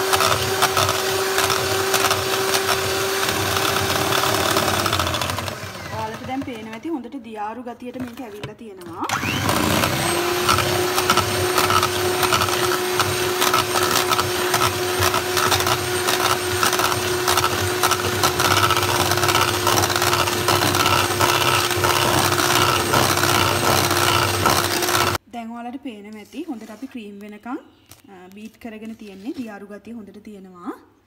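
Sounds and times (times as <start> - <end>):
electric hand mixer whirring: 0.0 - 6.8, 9.0 - 25.2.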